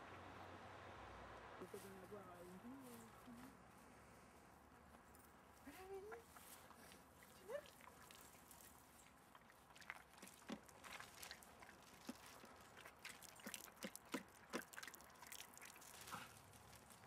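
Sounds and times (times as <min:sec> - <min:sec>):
dogs' paws on dry leaves: 0:15.4 - 0:17.0.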